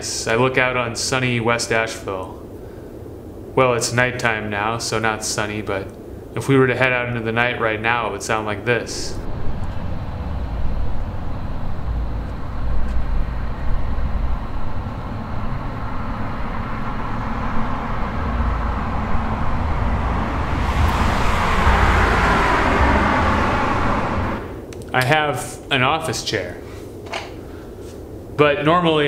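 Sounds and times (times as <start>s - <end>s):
road traffic rumble: 8.9s - 25.0s
vehicle approaching: 9.0s - 25.0s.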